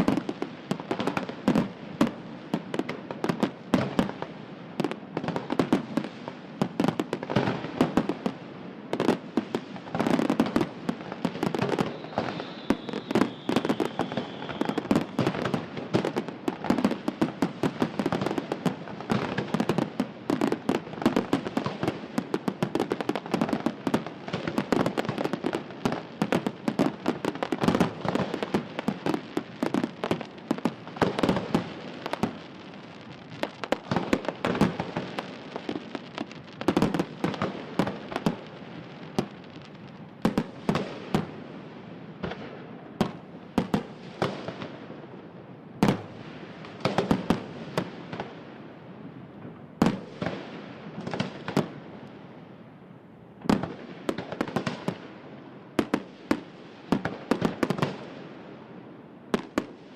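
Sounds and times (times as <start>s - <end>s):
fireworks bangs and crackling: 0.0s - 59.9s
faint firework whistle: 11.4s - 15.6s.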